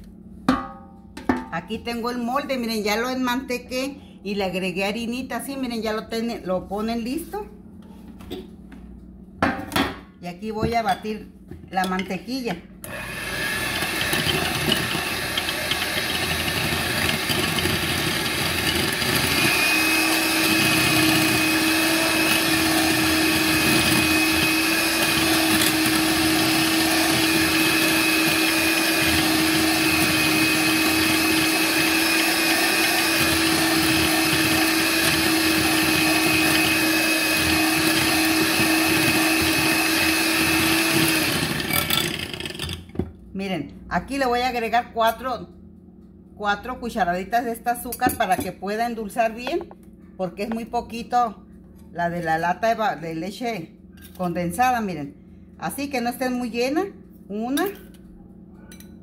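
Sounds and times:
electric hand mixer whine: 12.8s - 42.8s.

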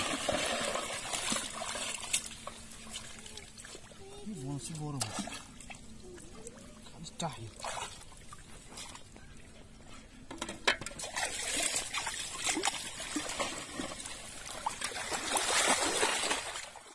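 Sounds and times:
water splashing in metal basin: 0.0s - 3.8s, 10.6s - 16.9s.

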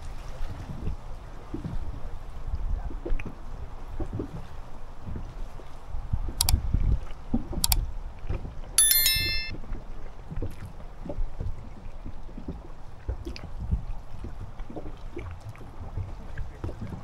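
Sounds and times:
short metallic ring: 8.8s - 9.5s.

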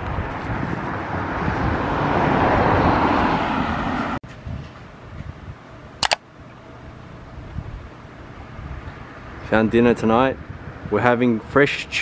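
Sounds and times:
car tyre and road noise: 0.0s - 5.4s, 7.3s - 11.2s
street ambience: 0.0s - 12.0s
sharp clicks: 6.0s - 6.2s.

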